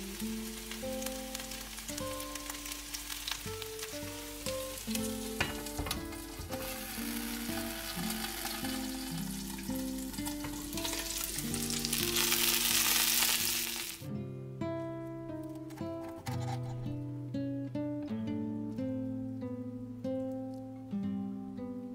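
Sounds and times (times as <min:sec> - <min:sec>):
fritters sizzling in oil: 0:00.0 - 0:14.0.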